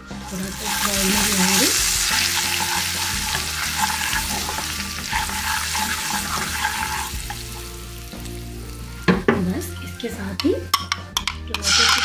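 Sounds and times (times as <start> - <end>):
spices sizzling in hot oil: 0.0 - 10.4, 11.5 - 12.0
spatula stirring and scraping: 0.3 - 7.7.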